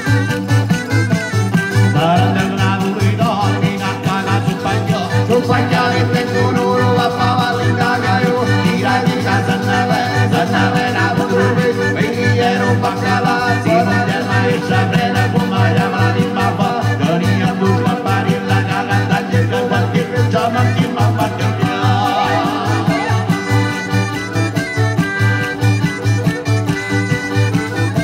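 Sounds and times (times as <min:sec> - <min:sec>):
accordion: 0:00.0 - 0:28.0
acoustic guitar: 0:00.0 - 0:28.0
frame drum beat: 0:13.2 - 0:24.4.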